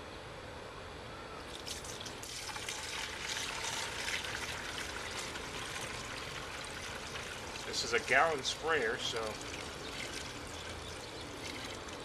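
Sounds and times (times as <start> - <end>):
liquid pouring into sprayer: 1.5 - 12.0.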